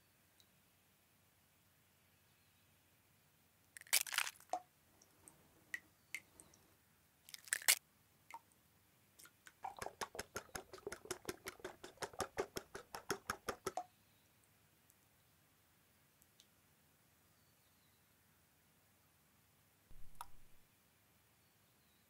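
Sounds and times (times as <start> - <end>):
eggs cracking: 3.8 - 4.6, 7.3 - 7.8, 9.2 - 13.8
spatula beating eggs in glass bowl: 9.6 - 13.8.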